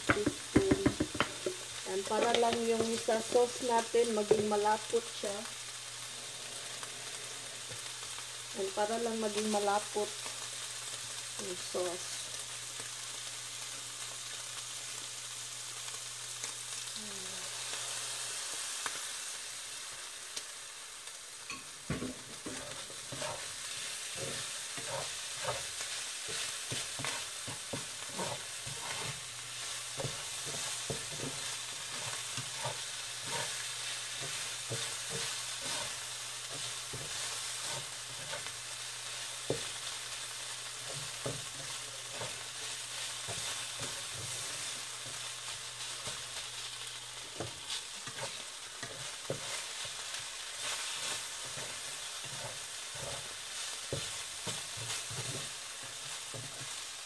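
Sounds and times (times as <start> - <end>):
meat filling sizzling in a pan: 0.0 - 57.0
utensil scraping a pan: 22.0 - 38.6, 47.4 - 50.0, 50.6 - 56.6.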